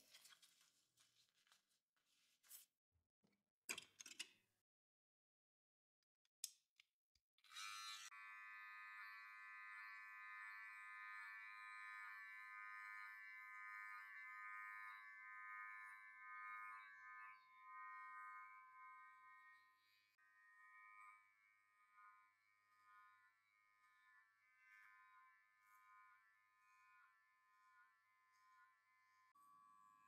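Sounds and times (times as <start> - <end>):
hair clipper humming: 7.5 - 19.4.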